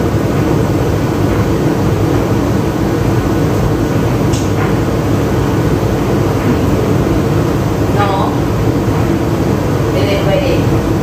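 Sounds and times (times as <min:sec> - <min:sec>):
machine rumble and hum: 0:00.0 - 0:11.0.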